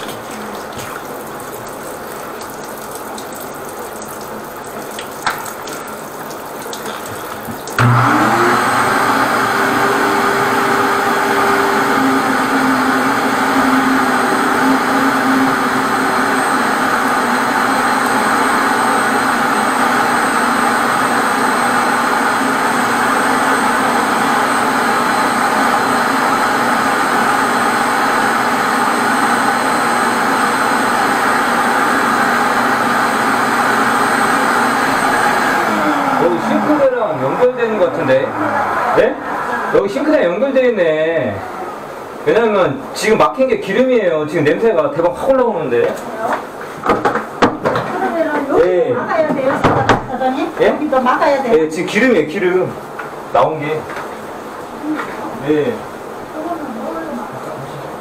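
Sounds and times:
suction vacuum machine whine: 7.8 - 45.6.

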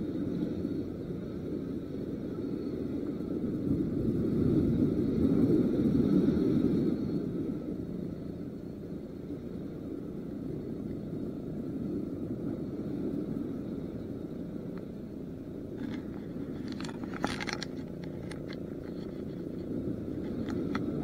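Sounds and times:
wind and sea rushing: 0.0 - 21.0
clicks and rustles of fishing line: 15.6 - 21.0.

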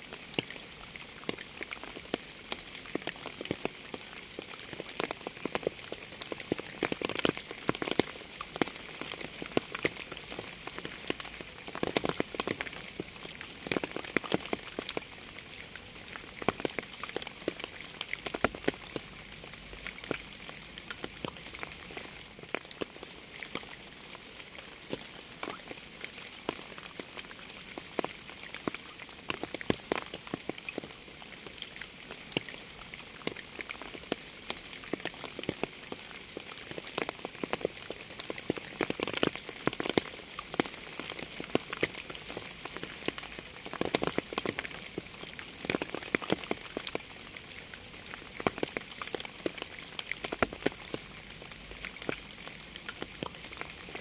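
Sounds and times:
rain drops tapping: 0.1 - 54.0.

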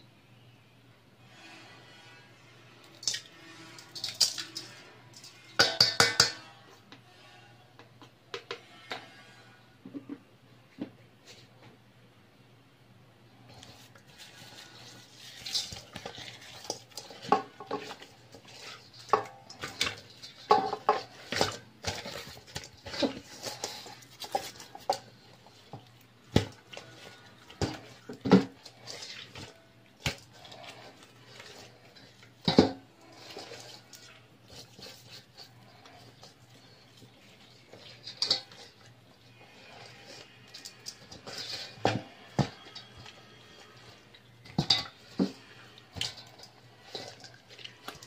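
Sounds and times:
fish knocking and scraping in metal bowl: 2.8 - 7.2, 7.9 - 10.9, 13.5 - 48.0.

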